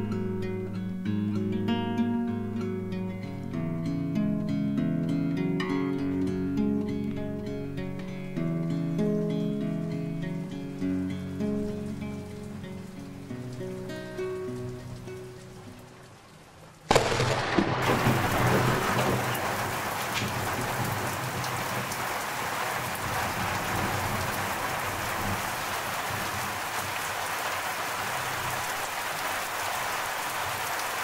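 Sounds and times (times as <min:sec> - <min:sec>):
heavy rain pouring: 0:08.7 - 0:31.0
thunderclap and rumble: 0:16.9 - 0:21.9.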